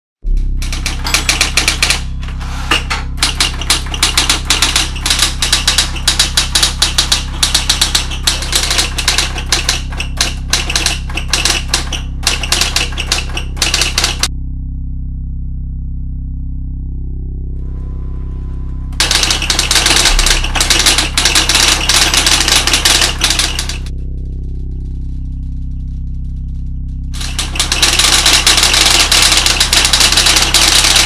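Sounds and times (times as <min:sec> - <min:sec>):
steady low hum: 0:00.2 - 0:31.0
electric typewriter typing: 0:00.4 - 0:14.3, 0:19.0 - 0:23.9, 0:27.2 - 0:31.0.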